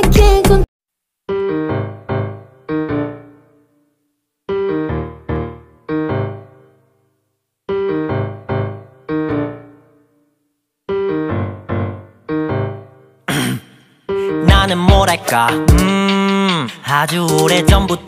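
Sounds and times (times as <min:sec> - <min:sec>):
piano notes: 0:01.3 - 0:13.3.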